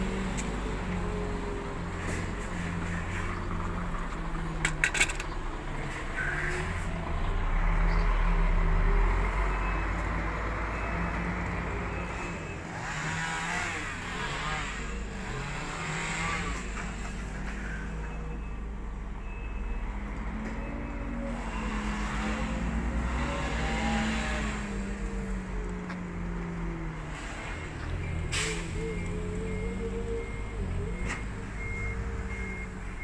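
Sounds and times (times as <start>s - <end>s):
truck diesel engine idling: 0.0s - 12.0s, 28.0s - 33.0s.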